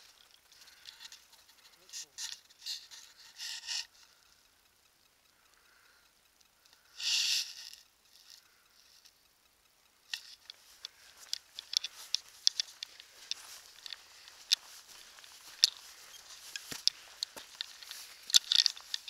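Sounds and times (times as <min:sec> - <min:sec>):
sharp little clicks: 0:00.0 - 0:19.0
footsteps on grass and rock: 0:10.4 - 0:19.0.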